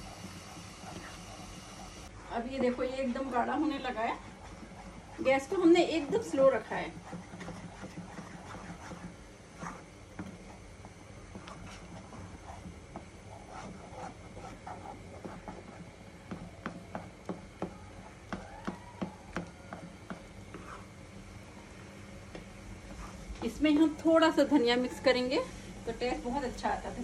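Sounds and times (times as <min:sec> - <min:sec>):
dough scraping in a pot: 0:00.0 - 0:18.2, 0:19.4 - 0:21.1.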